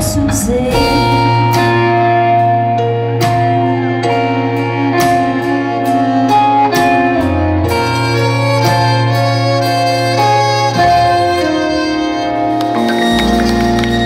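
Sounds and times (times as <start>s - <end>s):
keyboard chords: 0.0s - 14.0s
steady bass: 0.0s - 14.0s
drum beat: 0.6s - 2.0s.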